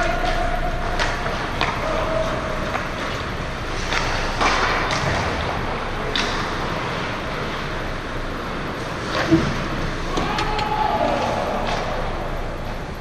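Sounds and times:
hockey stick and puck clacks: 0.0s - 7.7s, 8.8s - 12.1s
skates scraping ice: 0.2s - 10.2s.

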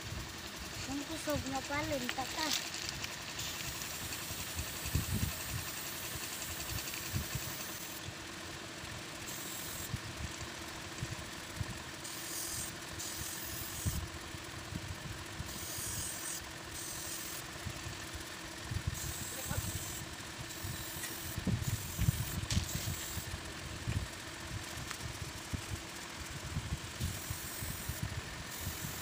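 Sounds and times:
airbrush hissing: 0.0s - 8.0s, 9.2s - 9.9s, 12.0s - 14.0s, 15.4s - 18.2s, 18.8s - 23.4s, 26.8s - 29.0s
air compressor humming: 0.0s - 29.0s.

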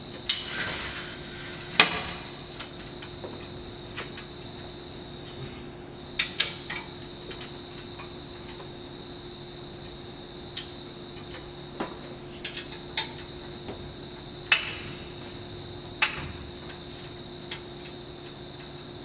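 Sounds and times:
faint high whine: 0.0s - 19.0s
sharp clicks and knocks: 14.5s - 15.0s, 16.0s - 18.7s.

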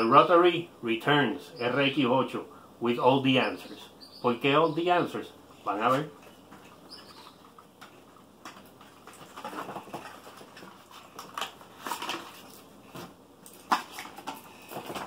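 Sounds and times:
cardboard rustling and scraping: 8.8s - 15.0s.

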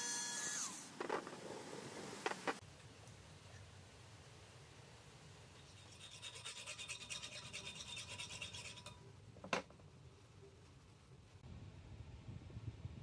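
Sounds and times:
file rasping metal: 5.7s - 9.0s.

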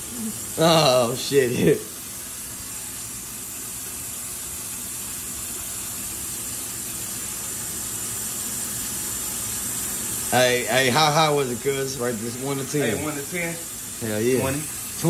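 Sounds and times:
faucet water running into sink: 0.0s - 15.0s.

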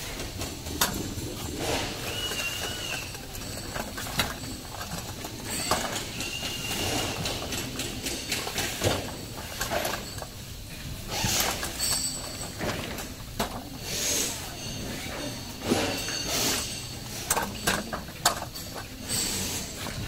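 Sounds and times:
wagon frame rattling: 0.0s - 13.8s.

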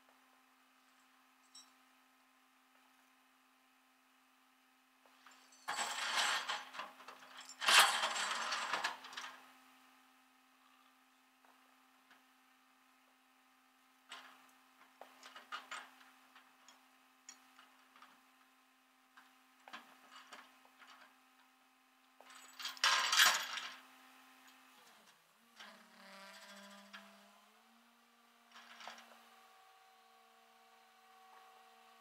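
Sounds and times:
chain and hooks clinking on metal: 1.4s - 1.8s, 5.2s - 9.3s, 22.2s - 23.8s.

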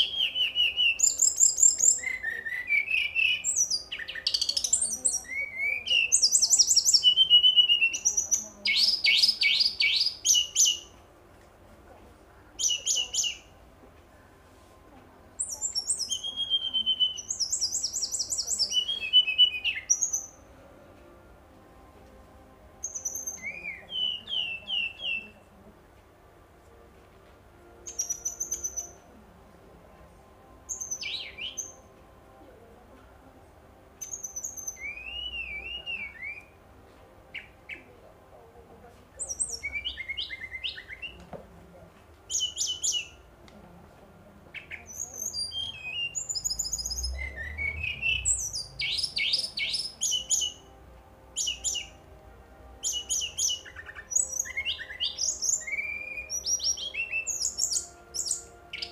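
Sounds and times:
bird singing whistles and trills: 0.0s - 11.0s, 12.6s - 13.6s, 15.4s - 20.5s, 22.8s - 25.5s, 27.8s - 29.1s, 30.6s - 31.9s, 34.0s - 36.6s, 37.3s - 37.9s, 39.2s - 41.2s, 42.3s - 43.3s, 44.5s - 50.7s, 51.4s - 52.0s, 52.8s - 58.9s.

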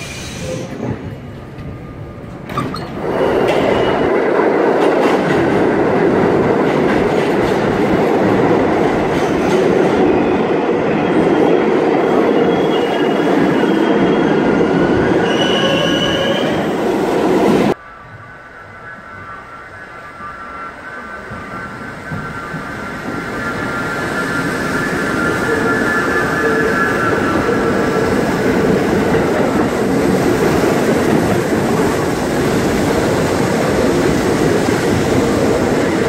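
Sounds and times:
subway train wheels rumbling: 0.0s - 36.0s
high wheel squeal: 12.3s - 16.7s.

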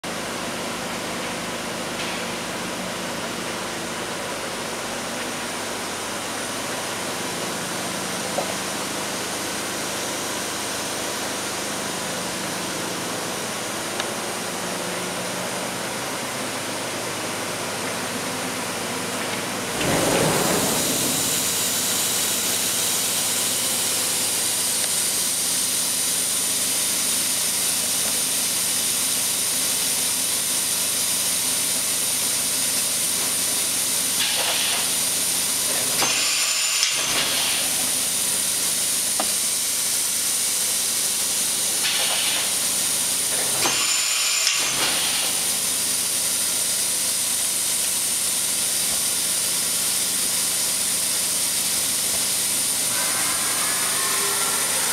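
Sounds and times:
machine running with steady hiss: 0.1s - 54.9s
rushing sound: 20.0s - 22.9s.

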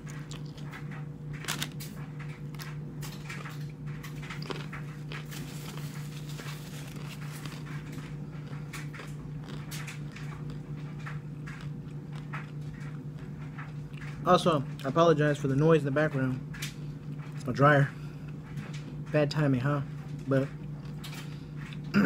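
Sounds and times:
crunching taco shell: 0.0s - 14.2s
clothes dryer humming: 0.0s - 22.0s.

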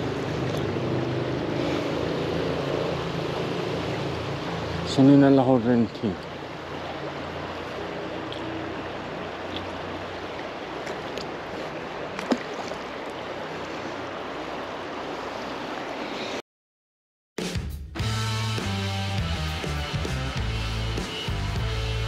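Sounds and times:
river water rushing: 0.0s - 16.4s.

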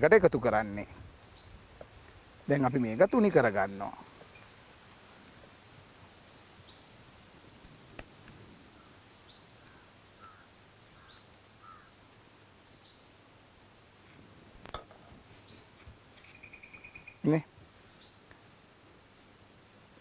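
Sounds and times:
sharp clicks: 7.6s - 8.4s
faint bird chirps: 8.7s - 12.0s, 15.3s - 18.2s.

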